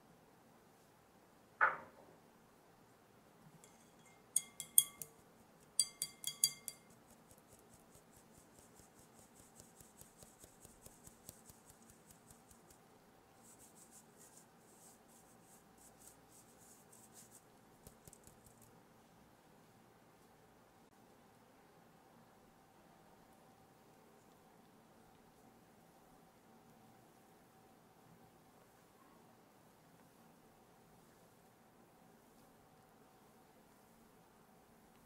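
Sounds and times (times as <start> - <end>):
sieve tapping on glass bowl: 3.6 - 5.2, 5.8 - 7.0
flour shaken through sieve ticking: 3.6 - 18.8.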